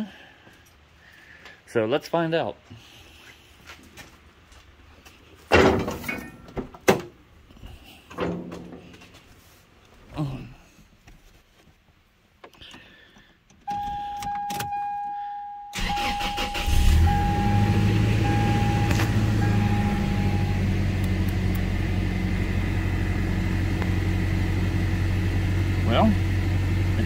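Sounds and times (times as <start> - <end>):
dashboard warning chime: 13.7 - 20.9
engine cranking: 15.8 - 17.0
engine idling: 15.8 - 27.0.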